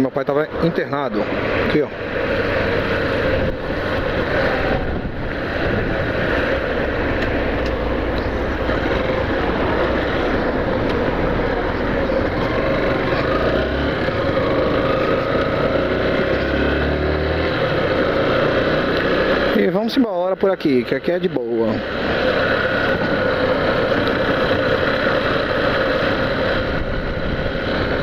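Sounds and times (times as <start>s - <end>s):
wind and road noise: 0.0s - 28.0s
motorcycle engine running: 0.3s - 28.0s.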